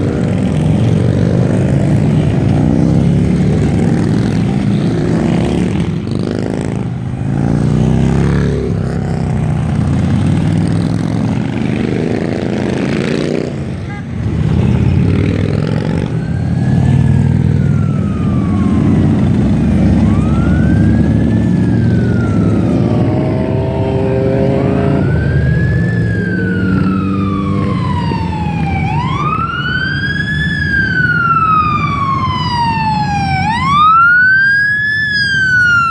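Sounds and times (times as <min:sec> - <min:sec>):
fire truck wail siren: 0:00.0 - 0:13.7, 0:14.7 - 0:35.9
motorcycles rumbling past: 0:00.0 - 0:35.9.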